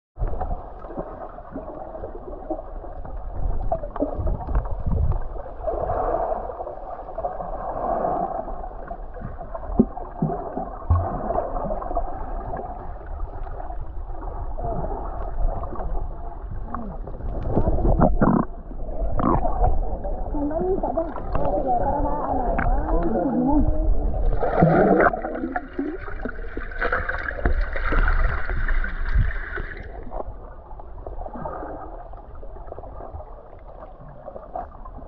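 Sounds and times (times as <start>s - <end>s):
gurgling sloshing water: 0.2s - 35.0s
low rumble: 8.3s - 35.0s.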